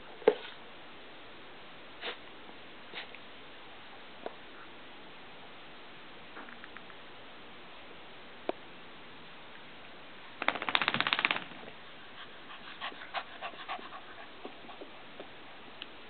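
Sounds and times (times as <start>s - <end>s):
rapid clicks: 10.4s - 11.6s.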